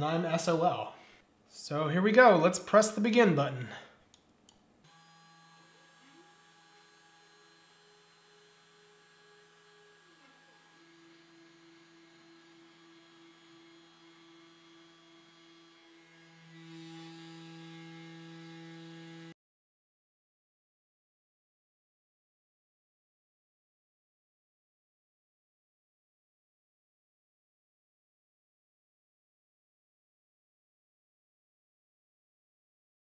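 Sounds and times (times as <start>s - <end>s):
spindle motor humming: 4.9s - 19.3s
stepper motor whine: 4.9s - 19.3s.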